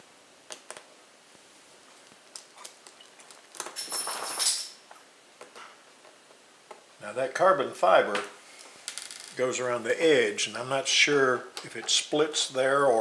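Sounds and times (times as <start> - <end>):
screws and screwdriver clattering: 3.3 - 4.8.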